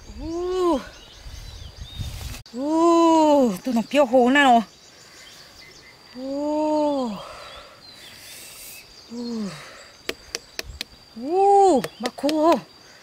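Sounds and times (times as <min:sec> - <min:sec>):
person calling out: 0:02.6 - 0:03.6.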